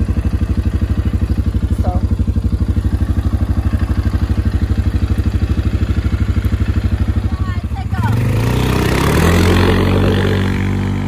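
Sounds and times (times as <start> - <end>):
engine idling: 0.0 - 9.3.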